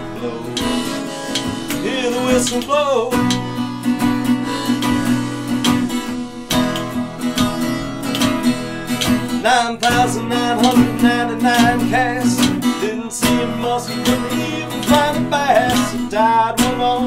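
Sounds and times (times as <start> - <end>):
person singing: 0.0 - 3.4, 9.4 - 17.0
acoustic guitar strumming: 0.0 - 17.0.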